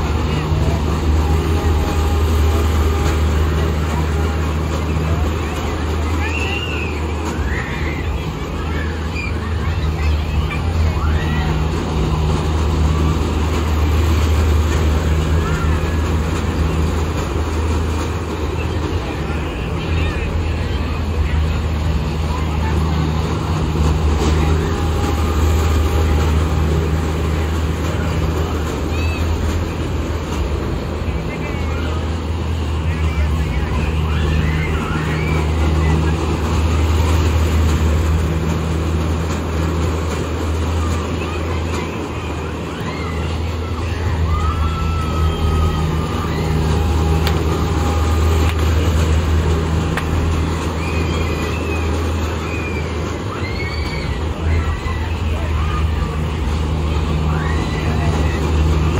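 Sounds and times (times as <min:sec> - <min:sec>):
fairground noise: 0:00.0 - 0:58.9
ride cars rumbling past: 0:00.0 - 0:58.9.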